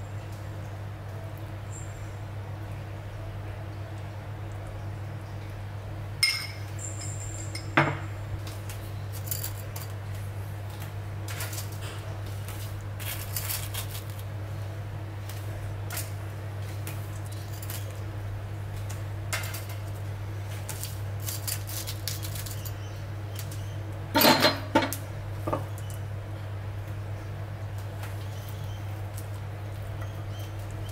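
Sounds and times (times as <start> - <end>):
metal utensils clinking: 6.2 - 8.0, 9.1 - 10.0, 13.0 - 14.2, 17.2 - 18.0, 20.8 - 22.8, 24.2 - 25.6.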